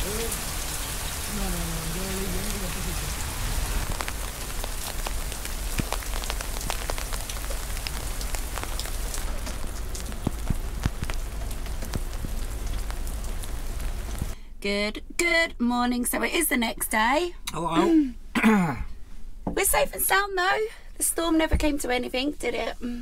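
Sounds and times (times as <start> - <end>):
heavy rain falling: 0.0 - 14.4
raindrops ticking close by: 0.0 - 14.4.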